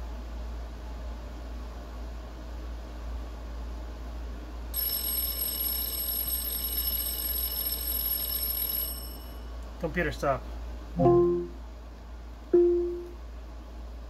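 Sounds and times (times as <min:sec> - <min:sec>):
high-pitched electronic alarm tone: 0:04.8 - 0:09.4.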